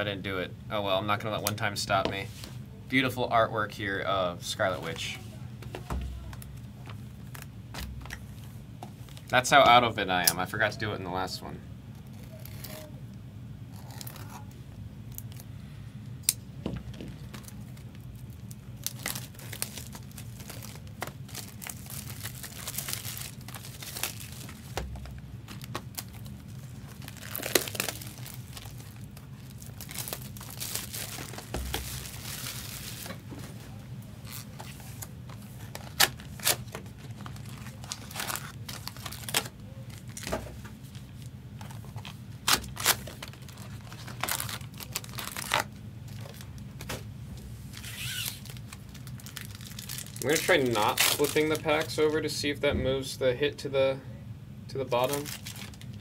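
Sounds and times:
steady low hum: 0.0 - 56.0
plastic and cardboard crinkling: 16.7 - 47.1, 47.7 - 52.2, 54.9 - 56.0.

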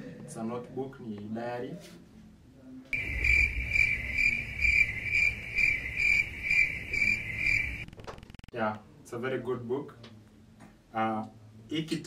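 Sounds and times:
crickets chirping: 3.0 - 7.9.

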